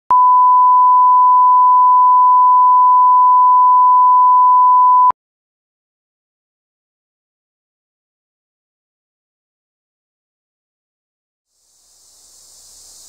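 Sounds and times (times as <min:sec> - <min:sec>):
steady pure test tone beep: 0:00.1 - 0:05.1.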